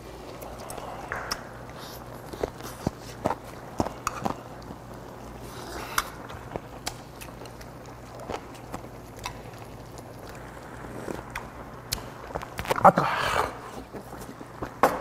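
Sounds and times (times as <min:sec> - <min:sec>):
steady low hum: 0:00.0 - 0:15.0
chewing: 0:00.2 - 0:14.7.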